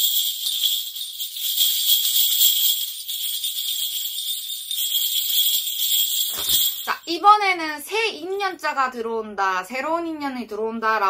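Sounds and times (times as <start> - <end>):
brass bells jingling: 0.0 - 7.2.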